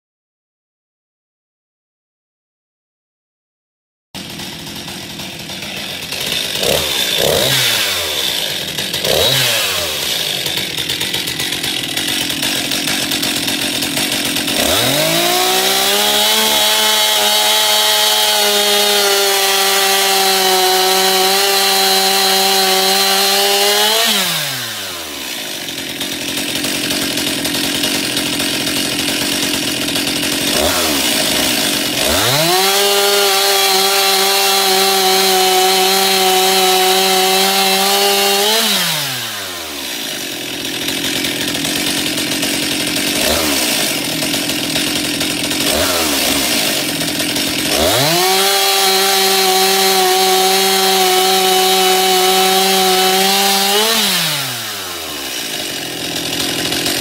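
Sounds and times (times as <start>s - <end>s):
chainsaw idling and revving: 4.2s - 57.0s.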